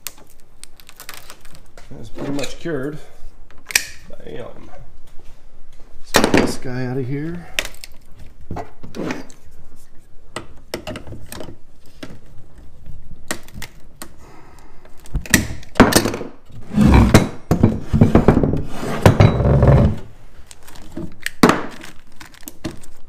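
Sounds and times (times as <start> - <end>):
rustling and thumps: 15.1 - 22.0.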